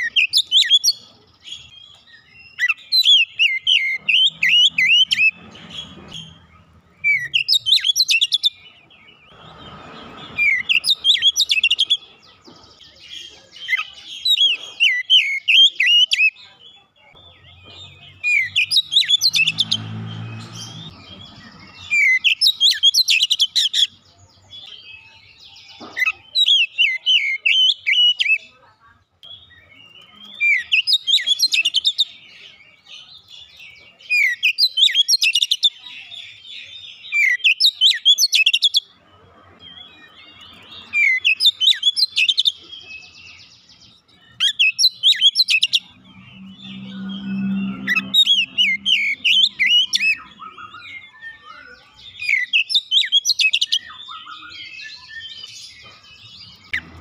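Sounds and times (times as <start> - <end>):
bird singing: 0.0 - 57.0.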